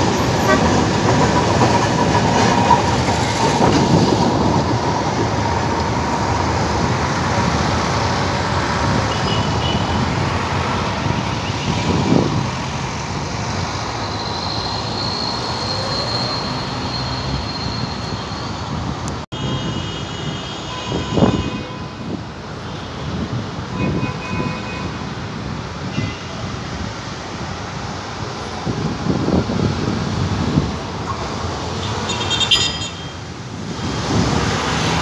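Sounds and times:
tram rolling along track: 0.0s - 19.2s, 24.8s - 32.2s
street traffic noise: 0.0s - 35.0s.

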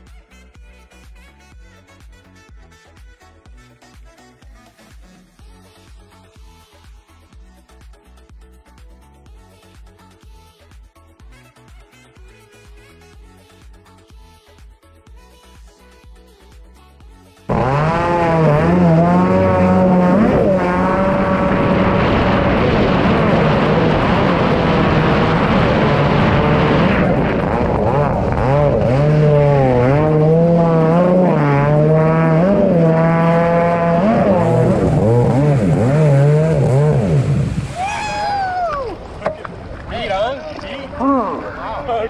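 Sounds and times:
jet ski engine revving: 17.5s - 38.8s.

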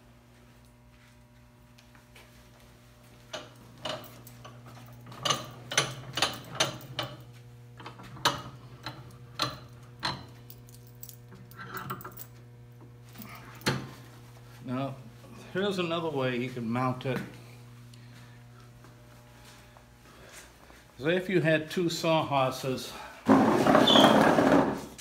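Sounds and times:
metal clinks: 10.0s - 12.3s.

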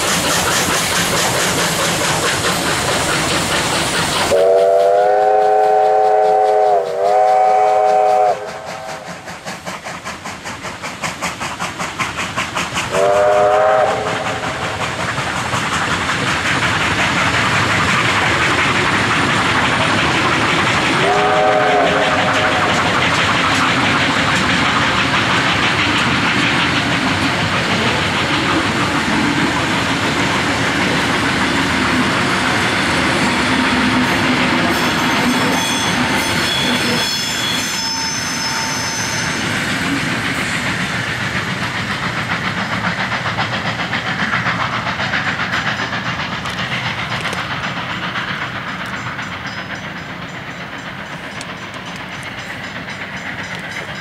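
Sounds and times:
rhythmic steam pulsing: 0.0s - 54.0s
steam train running: 0.0s - 54.0s
wheels clacking over rail joints: 0.0s - 54.0s
steam whistle blasts: 4.3s - 9.3s, 12.9s - 14.7s, 21.0s - 22.9s, 34.7s - 39.6s.

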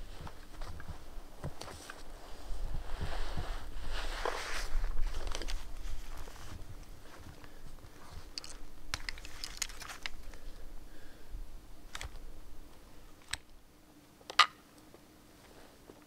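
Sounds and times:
gear rustling: 4.1s - 10.6s.

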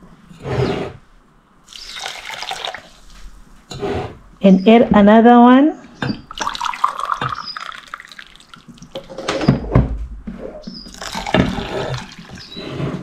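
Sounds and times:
hot water pouring into a mug: 1.7s - 3.2s, 6.3s - 9.0s, 10.9s - 12.5s
water pouring onto oats: 1.7s - 3.2s, 6.3s - 8.9s, 10.9s - 12.4s
dull knocks: 9.4s - 11.6s.

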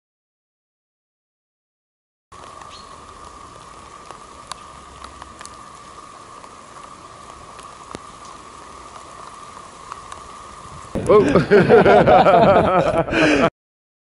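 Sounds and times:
light ticks: 2.4s - 10.6s
background hiss: 2.4s - 13.5s.

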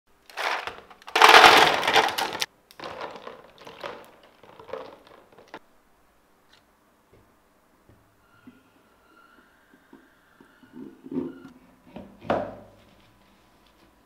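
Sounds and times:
ice cubes clattering into box: 0.3s - 5.6s
ice cubes rattling: 0.3s - 5.6s.

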